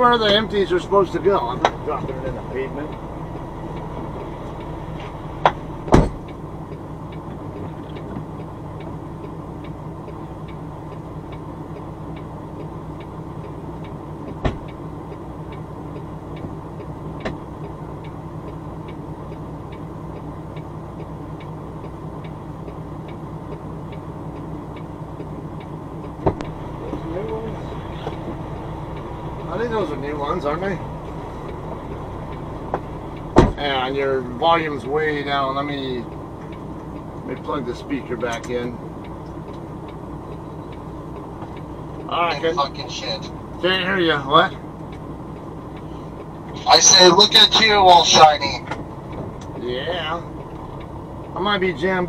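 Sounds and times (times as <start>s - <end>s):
truck diesel engine running: 0.0s - 52.0s
flasher relay ticking: 0.1s - 52.0s
thump: 5.4s - 6.2s, 14.4s - 14.6s, 33.4s - 33.6s.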